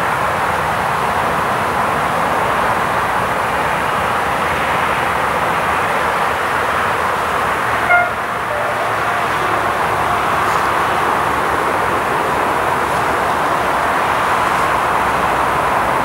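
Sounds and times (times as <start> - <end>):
train rolling: 0.0 - 16.0
high-pitched train toot: 7.8 - 11.8.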